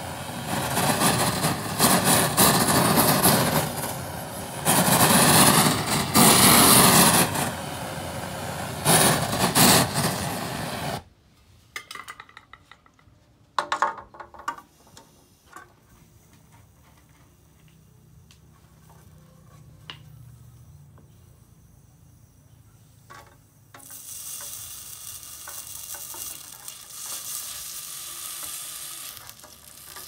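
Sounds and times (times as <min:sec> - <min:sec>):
gas torch flame roaring: 0:00.0 - 0:11.1, 0:23.6 - 0:30.0.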